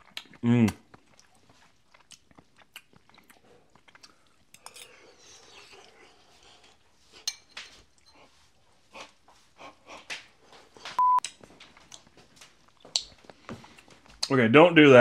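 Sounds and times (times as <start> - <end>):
chewing: 0.0 - 14.3
short electronic beep: 11.0 - 11.2.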